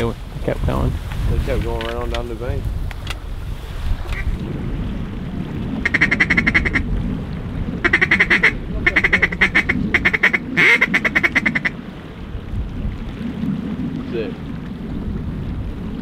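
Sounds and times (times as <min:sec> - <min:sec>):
wind rumble: 0:00.0 - 0:16.0
duck call chattering: 0:05.8 - 0:06.8, 0:07.8 - 0:11.7.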